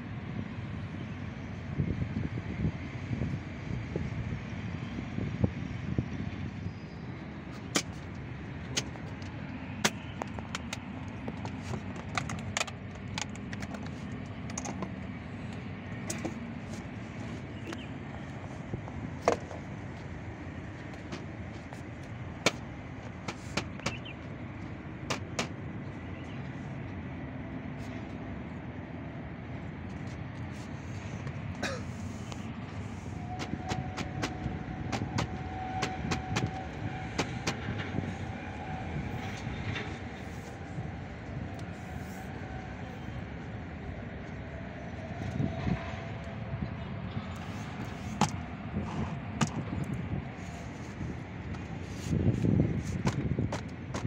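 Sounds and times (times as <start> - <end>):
steady background noise: 0.0 - 54.0
metal filter clicks and knocks: 9.8 - 15.0.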